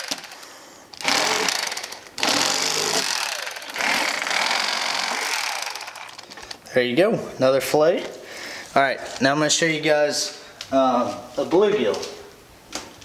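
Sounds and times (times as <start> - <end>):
electric knife buzzing: 1.0 - 6.2.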